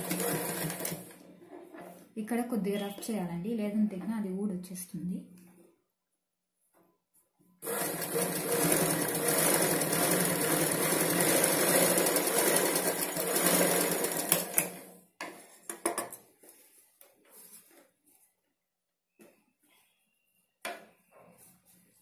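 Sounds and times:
sewing machine running: 0.0 - 1.2, 7.6 - 15.0
cloth rustling: 16.3 - 18.5.

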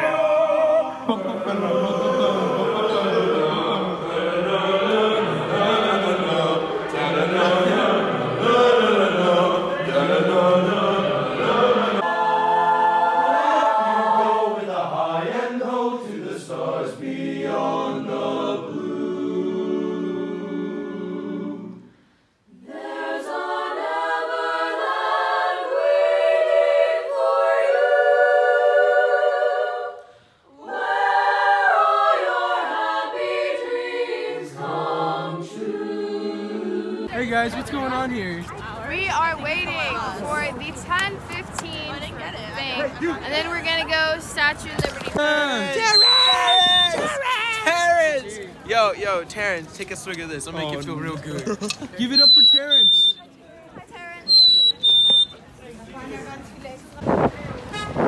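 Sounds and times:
group singing a cappella: 0.0 - 37.2.

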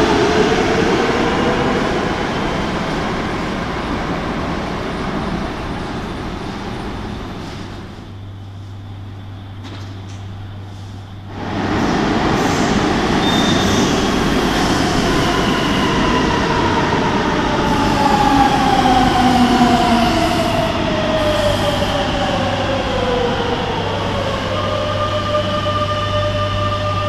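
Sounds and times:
standing train hum: 0.0 - 27.0
electric train braking: 8.6 - 22.9.

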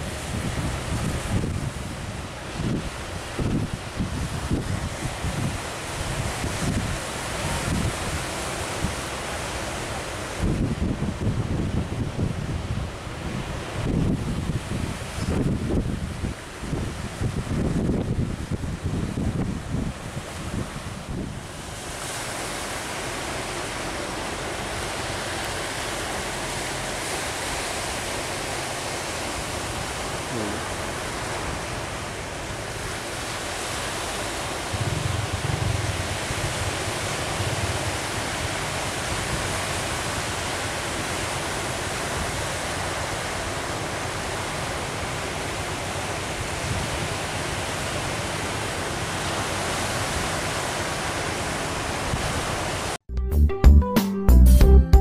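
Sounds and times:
ocean surf breaking: 0.0 - 53.0
wind rumbling on microphone: 0.0 - 53.0.

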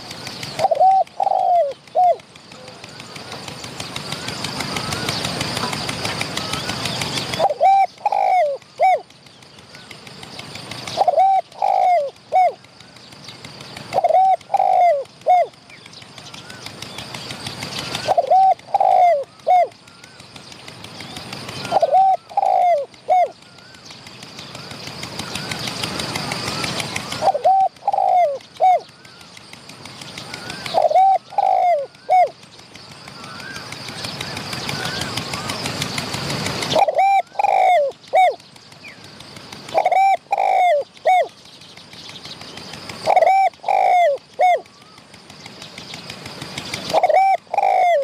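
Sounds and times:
dove cooing: 0.0 - 9.1, 9.8 - 13.0, 13.8 - 15.6, 16.4 - 20.4, 21.5 - 23.8, 24.5 - 29.3, 30.2 - 32.4, 36.4 - 38.4, 39.5 - 41.4, 42.8 - 45.1, 46.3 - 48.0.

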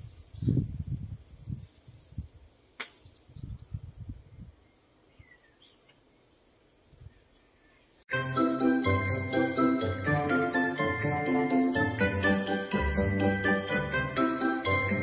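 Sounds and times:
wind buffeting microphone: 0.0 - 5.3, 6.8 - 7.3
faint bird chirps: 2.8 - 8.0.

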